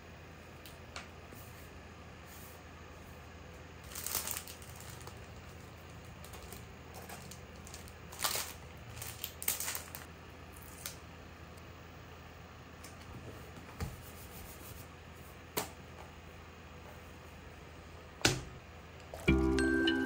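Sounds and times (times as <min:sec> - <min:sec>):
low steady hum: 0:00.0 - 0:20.0
paper rustling and crinkling: 0:03.8 - 0:11.0.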